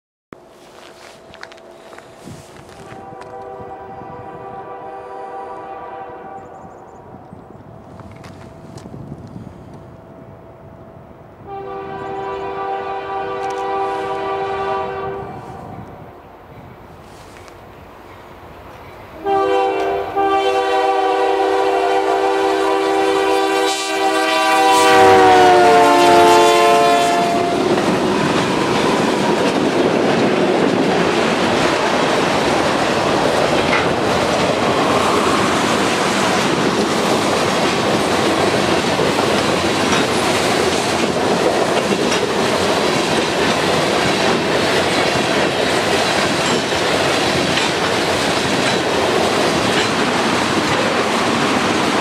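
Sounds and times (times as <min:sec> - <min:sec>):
locomotive air horn chord: 0:01.6 - 0:06.6, 0:11.5 - 0:15.9, 0:19.2 - 0:27.8
train wheels clattering over rails: 0:27.5 - 0:52.0.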